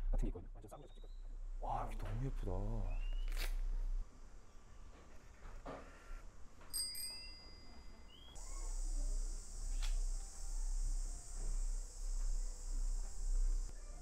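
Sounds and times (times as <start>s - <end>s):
birds chirping: 2.8s - 3.4s, 8.1s - 8.8s
high buzz of insects: 8.0s - 14.0s.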